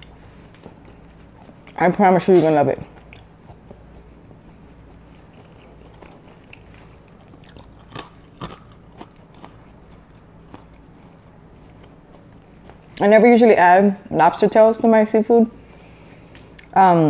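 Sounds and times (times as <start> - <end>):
person chewing fries: 0.0 - 13.2, 15.6 - 16.8
crisp chewing clicks: 2.9 - 13.0.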